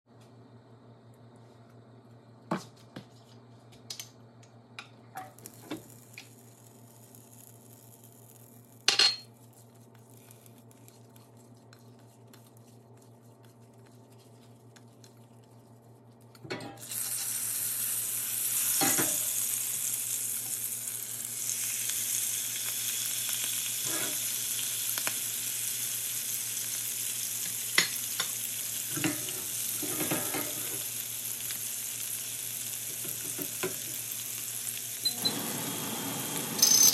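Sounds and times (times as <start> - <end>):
oil sizzling in a frying pan: 5.2 - 9.4, 16.8 - 36.9.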